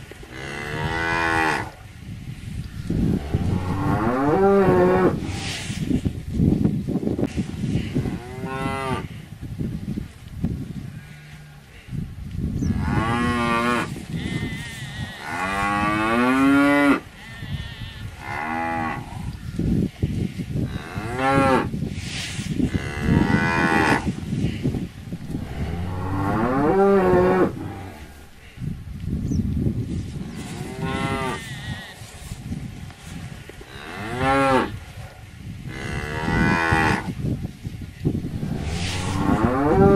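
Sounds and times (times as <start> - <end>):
low rustling noise: 2.0 - 8.0, 24.1 - 30.7, 37.7 - 39.9
cows mooing: 2.8 - 5.6, 25.2 - 28.3, 38.2 - 39.9.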